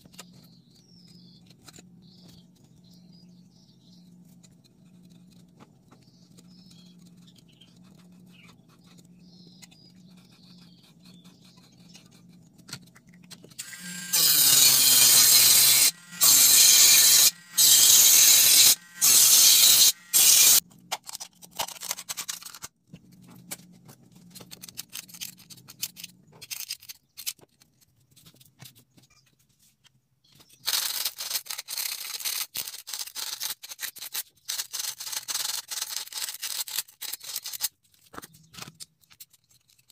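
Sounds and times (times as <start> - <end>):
rotary tool cutting metal: 13.6 - 20.6.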